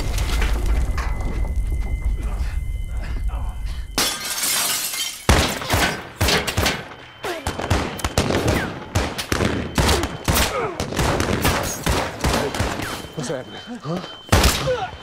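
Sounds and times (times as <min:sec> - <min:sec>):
gunshots: 0:05.3 - 0:13.1.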